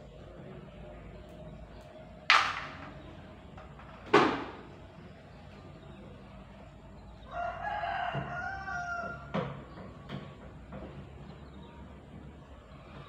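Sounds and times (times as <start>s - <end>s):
rooster crowing: 7.3s - 9.6s.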